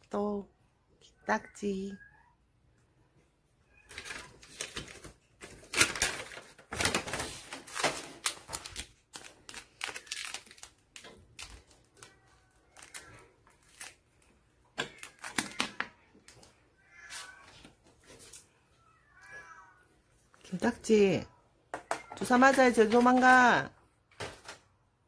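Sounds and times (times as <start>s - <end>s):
plastic bag crinkling: 3.9s - 15.8s.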